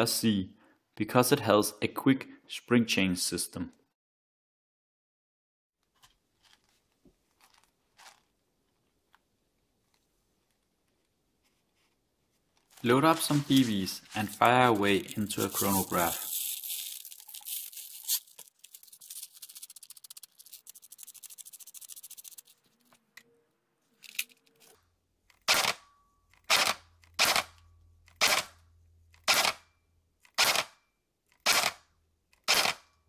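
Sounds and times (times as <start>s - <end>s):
pellets rattling into magazine: 12.7s - 22.6s
airsoft gun shots: 25.5s - 25.8s, 26.5s - 27.5s, 28.2s - 28.5s, 29.3s - 29.6s, 30.4s - 30.8s, 31.4s - 31.8s.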